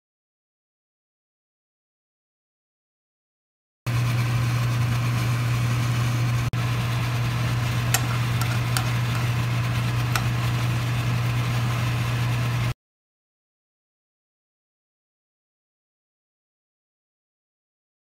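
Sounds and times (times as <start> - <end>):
low machine hum: 3.9 - 12.8.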